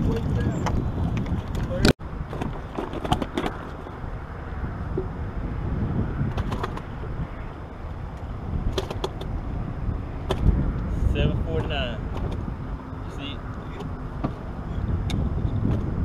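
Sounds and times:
water around boats: 0.0s - 16.0s
wind on microphone: 0.0s - 16.0s
gear clicks and knocks: 6.3s - 6.9s, 8.7s - 9.4s.

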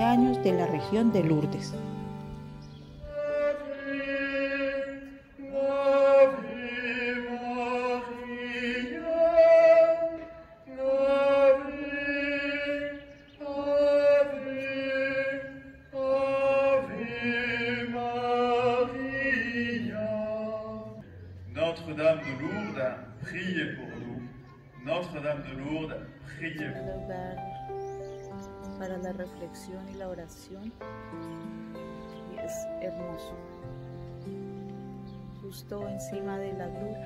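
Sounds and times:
slow sung liturgical chant: 2.7s - 23.6s.

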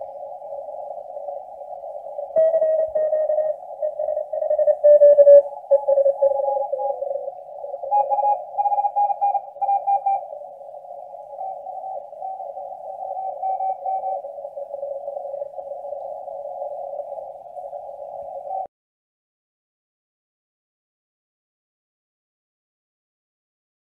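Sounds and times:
radio hiss: 0.0s - 18.7s
morse code tones: 2.4s - 7.3s, 7.9s - 10.2s.

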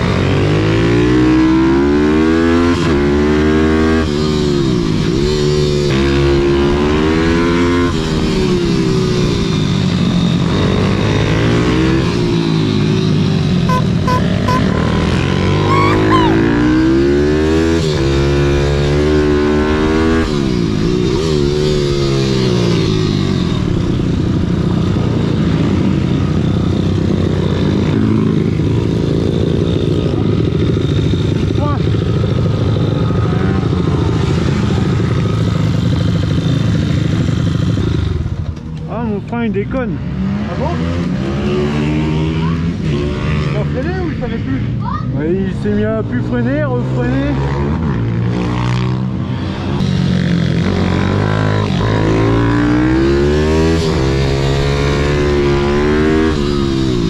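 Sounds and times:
motorbike engine revving: 5.2s - 38.3s, 46.8s - 57.0s.

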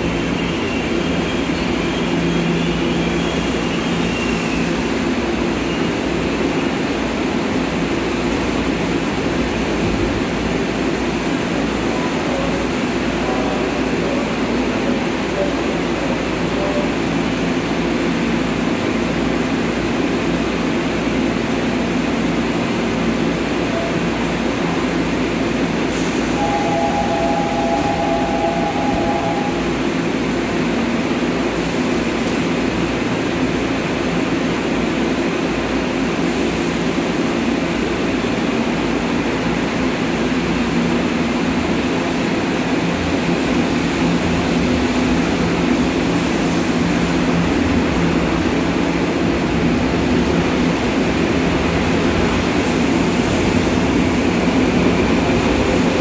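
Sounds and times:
electric train humming: 10.3s - 33.5s, 39.3s - 56.0s
two-note door warning tone: 26.4s - 29.7s.

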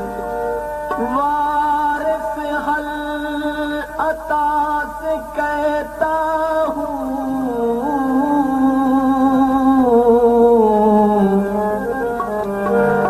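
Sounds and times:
man singing long sliding note: 0.0s - 13.0s.

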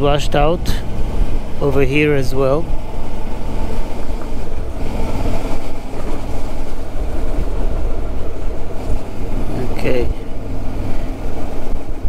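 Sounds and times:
motorcycle engine running: 0.0s - 12.0s.

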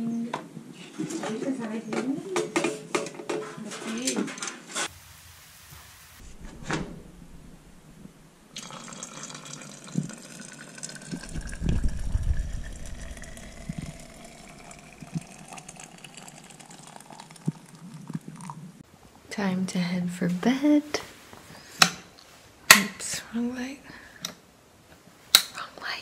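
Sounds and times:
water pouring into a jug: 8.5s - 18.6s.

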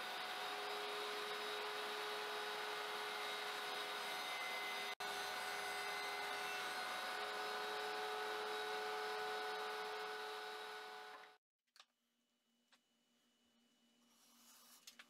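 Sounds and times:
motor hum with whine: 0.0s - 11.4s.

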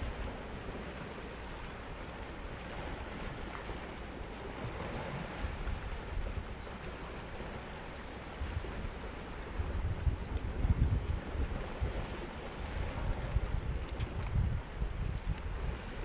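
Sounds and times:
waves splashing against rocks: 0.0s - 16.0s
wind buffeting microphone: 4.5s - 16.0s.

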